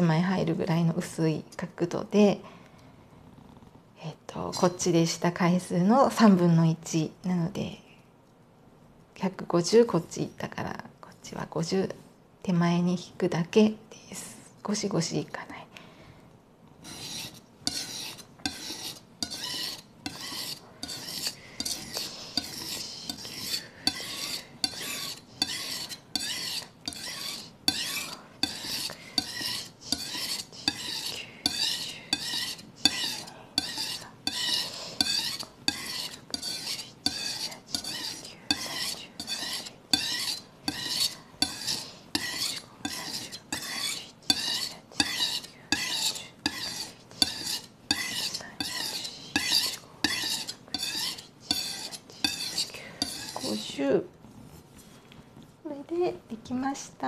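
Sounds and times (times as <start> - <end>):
knife scraping on a whetstone: 16.8 - 53.8.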